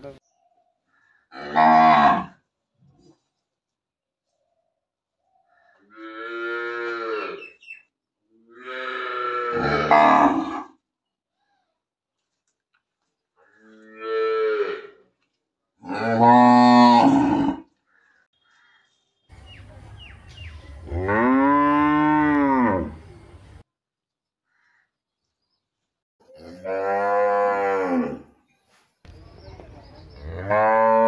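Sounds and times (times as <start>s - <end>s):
cow mooing: 1.4s - 2.4s, 5.9s - 7.4s, 8.5s - 10.7s, 15.8s - 17.6s, 20.9s - 23.0s, 26.3s - 28.3s.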